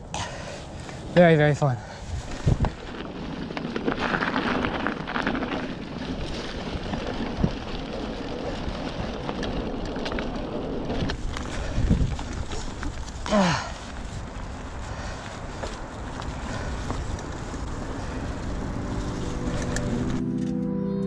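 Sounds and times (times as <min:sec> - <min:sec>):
bike tyres on dirt trail: 0:00.0 - 0:20.4
wind on microphone: 0:02.0 - 0:04.3, 0:10.8 - 0:12.6.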